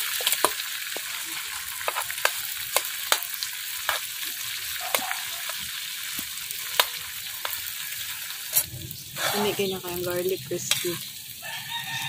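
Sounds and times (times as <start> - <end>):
metal ladle stirring in wok: 0.0 - 4.2
garlic sizzling in butter: 0.0 - 12.0.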